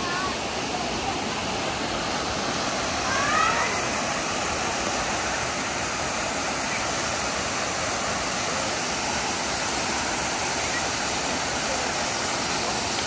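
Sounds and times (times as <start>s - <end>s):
waterfall cascading into pool: 0.0s - 13.0s.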